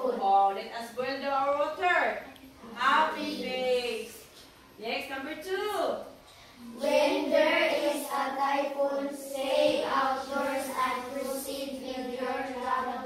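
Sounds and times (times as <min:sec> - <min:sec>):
children singing in unison: 0:06.7 - 0:13.0.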